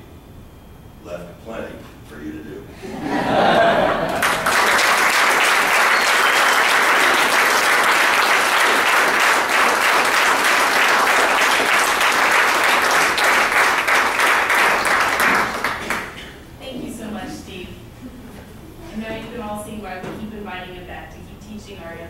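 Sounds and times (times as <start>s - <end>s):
audience applauding: 3.3s - 16.3s.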